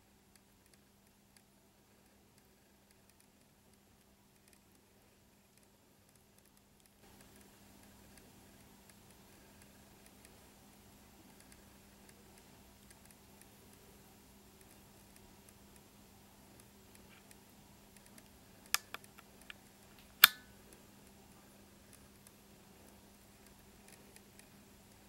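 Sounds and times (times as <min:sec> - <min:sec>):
faint scattered ticking: 0:00.3 - 0:20.0, 0:20.6 - 0:25.0
short clicks: 0:18.0 - 0:20.5
loud sharp click: 0:20.2 - 0:20.5.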